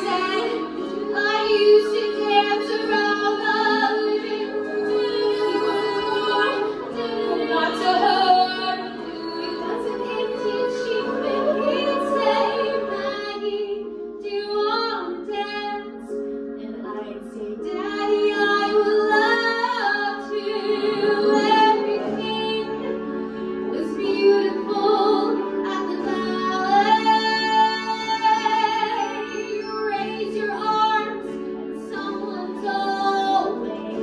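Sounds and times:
women singing together: 0.0 - 15.8, 16.8 - 22.9, 23.7 - 34.0.

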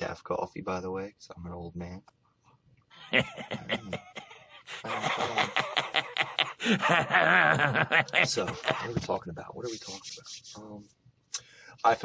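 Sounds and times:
wavering vocal noise: 3.0 - 8.8.

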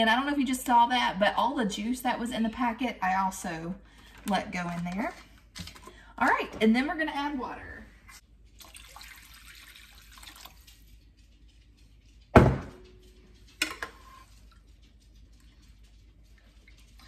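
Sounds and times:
water pouring and splashing: 8.5 - 10.9.

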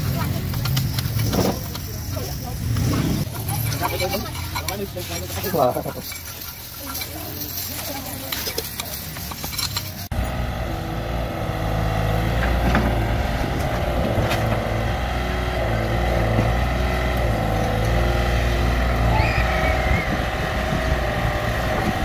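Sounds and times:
clinking sound: 0.0 - 10.1
excavator diesel engine running: 0.0 - 22.0.

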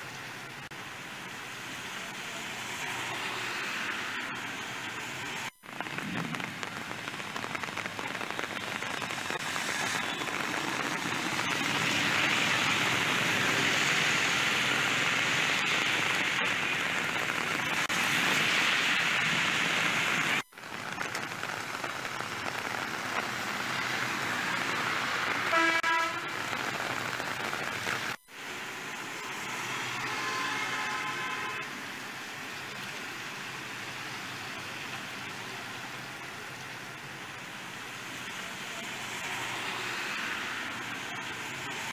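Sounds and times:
heavy rain pouring on road: 0.0 - 41.9
passing traffic: 0.0 - 41.9
vehicle horn tooting: 25.5 - 26.3, 30.0 - 31.6.

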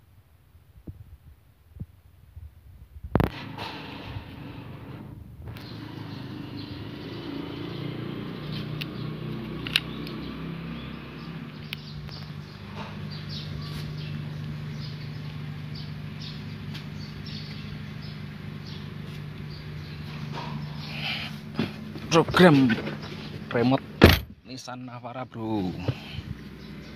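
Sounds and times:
small birds chirping: 5.5 - 26.9
steady low hum: 10.9 - 26.9.

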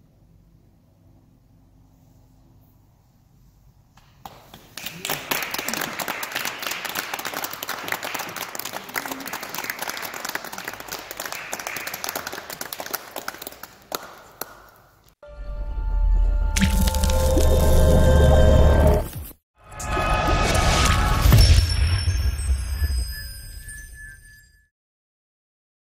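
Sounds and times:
audience applauding: 4.2 - 14.7.

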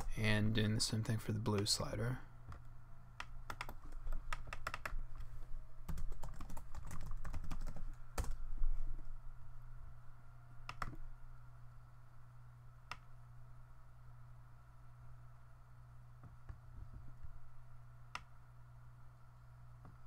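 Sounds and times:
steady low hum: 0.0 - 20.0
keyboard typing: 2.5 - 5.2, 5.9 - 8.4.

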